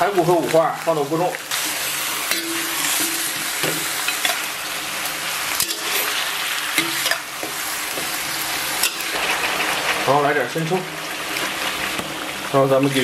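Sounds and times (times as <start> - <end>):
meat sizzling in a wok: 0.0 - 13.0
metal ladle scraping a wok: 1.5 - 4.7, 5.4 - 10.1.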